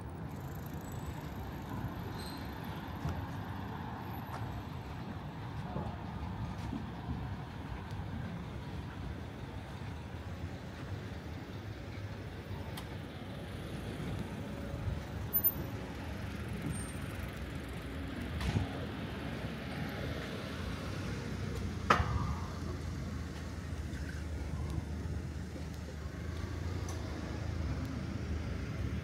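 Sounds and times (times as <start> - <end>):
cars passing on street: 0.0 - 29.0.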